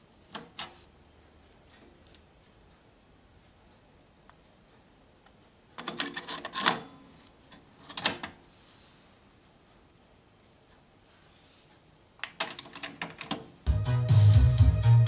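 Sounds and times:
cassette rattling and clicking: 5.8 - 6.9, 7.5 - 8.4, 12.2 - 13.6.

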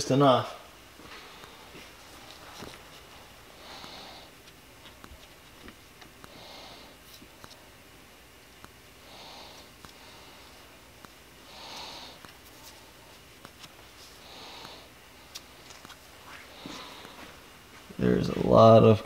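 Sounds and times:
person breathing through nose: 3.5 - 4.4, 9.0 - 10.7, 11.4 - 12.3, 14.1 - 15.0.

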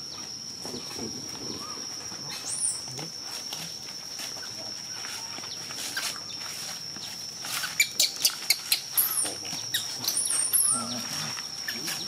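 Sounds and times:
high-pitched insect drone: 0.0 - 12.0
sharp clicks and high chirps: 7.0 - 12.0.

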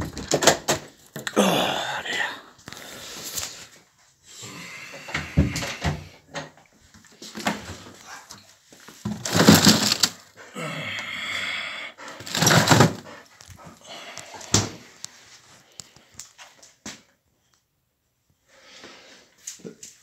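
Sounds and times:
frozen food bags rustling: 7.2 - 10.4, 12.2 - 13.0
freezer drawer opening and shutting: 9.1 - 10.2, 12.2 - 13.1.

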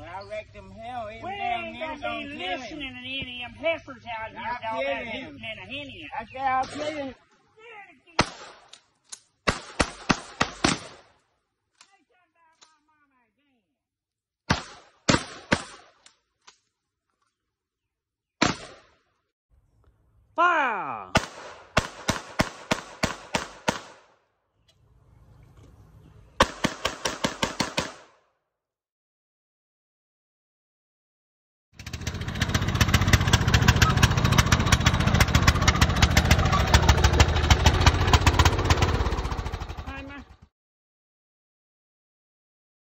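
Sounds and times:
handgun shots with echo: 9.5 - 11.1, 21.2 - 24.1, 26.4 - 28.2
riding lawn mower engine running: 24.8 - 26.4, 31.8 - 40.5.

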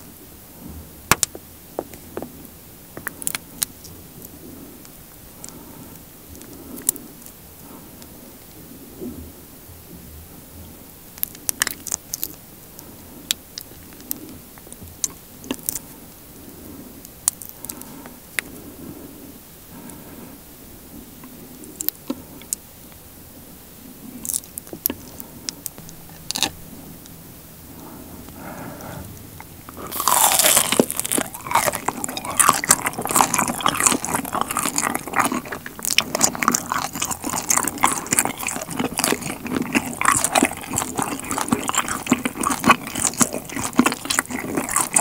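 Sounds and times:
honey squelching: 24.2 - 45.0
wax comb crackling: 24.2 - 45.0.

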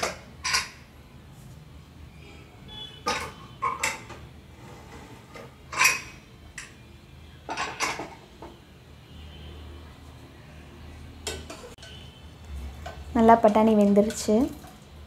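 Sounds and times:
metal pots clanking: 0.0 - 0.8, 3.0 - 4.3, 5.2 - 6.7, 7.5 - 8.3.

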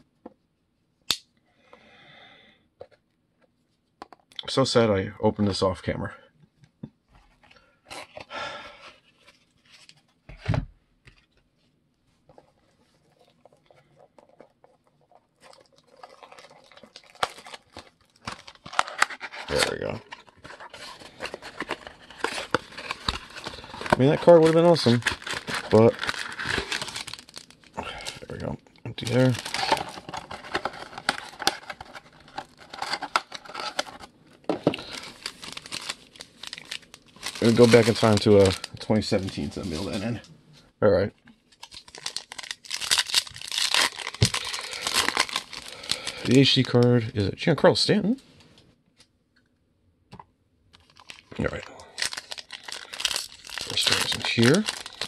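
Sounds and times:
packaging rustling and crinkling: 12.2 - 40.3, 41.4 - 47.0, 50.7 - 55.0.

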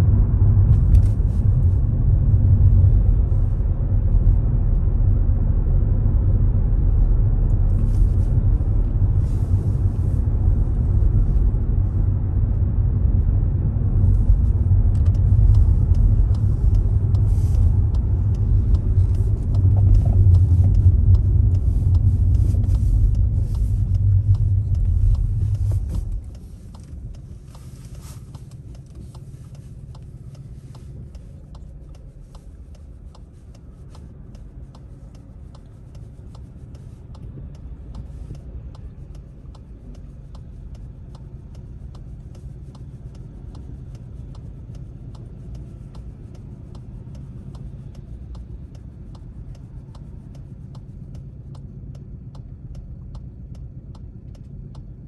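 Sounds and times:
car road and engine rumble: 0.0 - 55.0
faint clicking ticks: 14.0 - 55.0.

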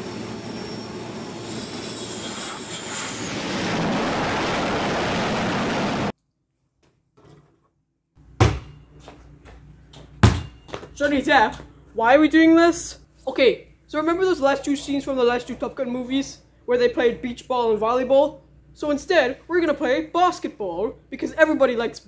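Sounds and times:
jet engine roar with whine: 0.0 - 6.1.

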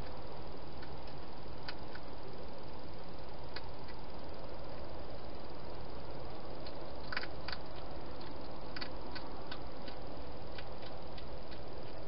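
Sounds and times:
steady hiss: 0.0 - 12.0
hedgehog chewing clicks: 0.8 - 2.1, 3.5 - 4.0, 6.6 - 12.0.

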